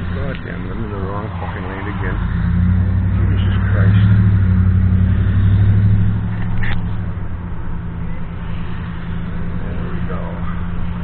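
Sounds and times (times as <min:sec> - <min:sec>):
truck engine droning: 0:00.0 - 0:11.0.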